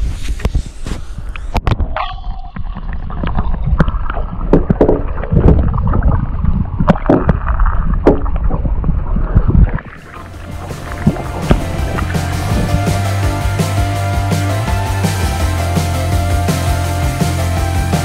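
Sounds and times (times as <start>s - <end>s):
muffled underwater gurgling: 1.5s - 13.6s.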